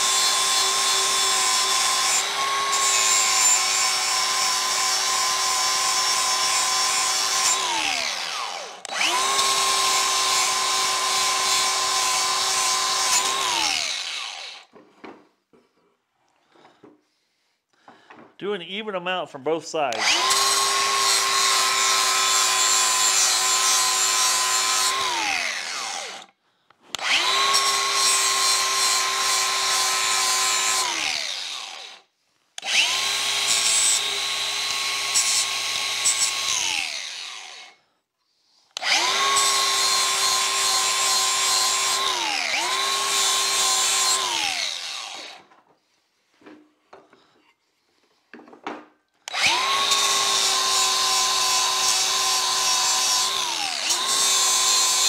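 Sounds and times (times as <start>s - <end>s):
angle grinder grinding metal: 0.0s - 14.7s, 19.9s - 26.3s, 27.0s - 32.0s, 32.6s - 37.8s, 38.7s - 45.5s, 49.3s - 55.0s
grinder motor winding down: 0.0s - 14.7s, 19.9s - 26.3s, 27.0s - 32.0s, 32.6s - 37.8s, 38.8s - 45.4s, 49.3s - 55.0s.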